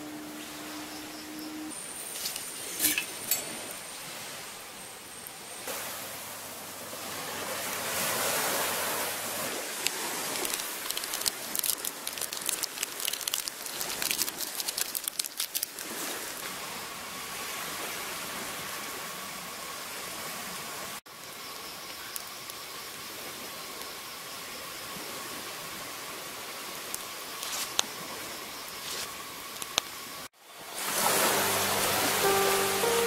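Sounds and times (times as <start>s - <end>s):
night insects droning: 0.0s - 33.0s
surf washing on beach: 5.6s - 21.0s, 30.4s - 33.0s
sharp crackles: 9.7s - 16.4s, 26.9s - 27.9s.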